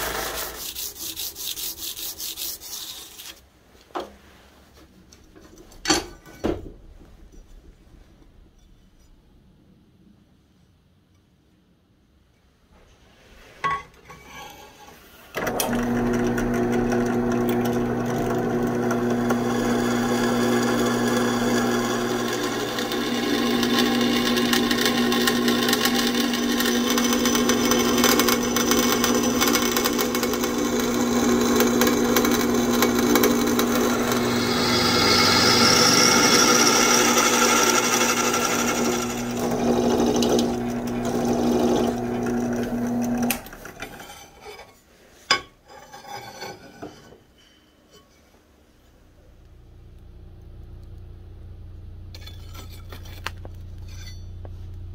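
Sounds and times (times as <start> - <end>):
drill press motor running: 15.4 - 43.6
drill bit drilling steel: 15.6 - 43.4.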